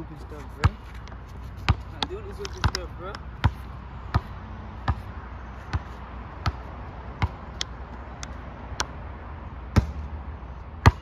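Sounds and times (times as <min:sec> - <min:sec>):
basketball bouncing on asphalt: 0:00.0 - 0:11.0.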